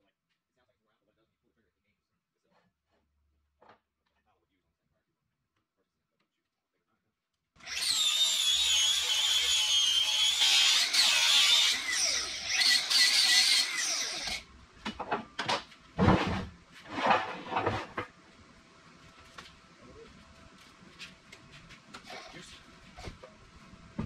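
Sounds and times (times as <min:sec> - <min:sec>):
power grinder whining on steel: 0:07.6 - 0:14.4.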